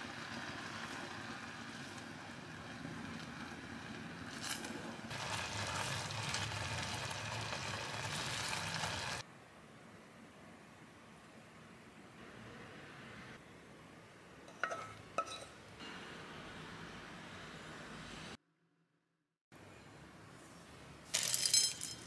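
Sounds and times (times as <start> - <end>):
jam cooking in saucepan: 0.0 - 9.2.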